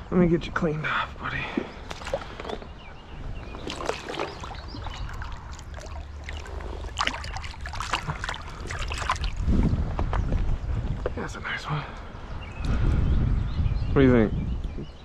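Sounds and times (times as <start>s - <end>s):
wind rumbling on microphone: 1.2s - 15.0s
water splashing and sloshing: 1.4s - 11.0s.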